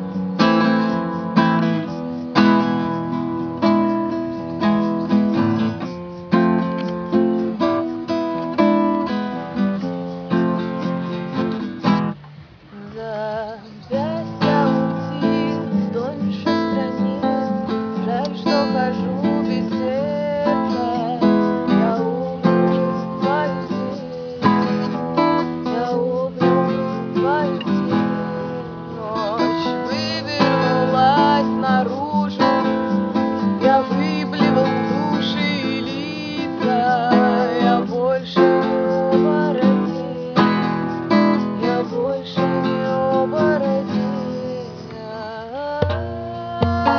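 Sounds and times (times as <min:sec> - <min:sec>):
acoustic guitar strumming: 0:00.0 - 0:46.9
person singing: 0:12.7 - 0:46.9.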